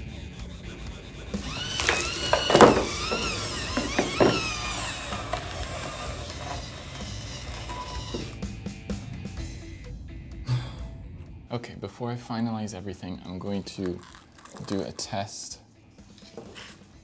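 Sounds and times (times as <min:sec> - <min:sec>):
servos whining: 0:00.0 - 0:08.9.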